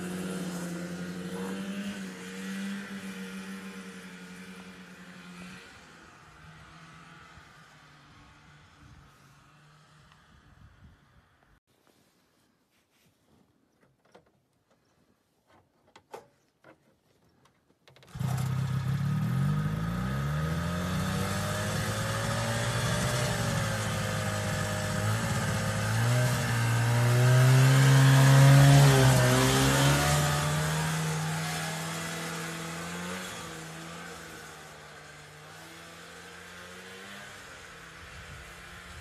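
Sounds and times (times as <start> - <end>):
two-stroke engine starting and revving: 0.0 - 7.4, 18.0 - 39.0.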